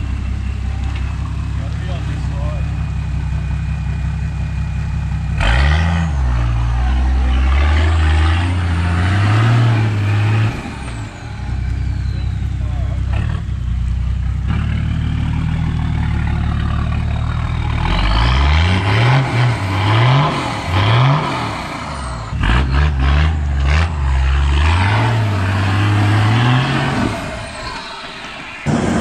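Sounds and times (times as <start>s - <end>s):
engine revving: 0.0s - 29.0s.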